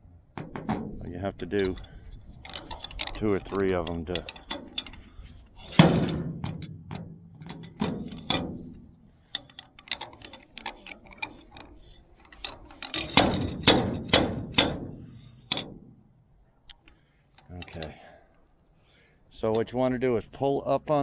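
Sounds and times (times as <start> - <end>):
metal clinks on car roof: 12.7 - 16.0
hard ringing metal strikes: 13.0 - 16.0.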